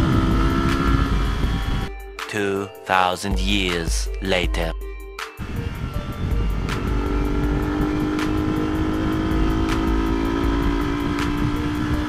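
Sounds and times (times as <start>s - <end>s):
motorcycle engine cruising: 0.0s - 1.9s, 5.4s - 12.0s.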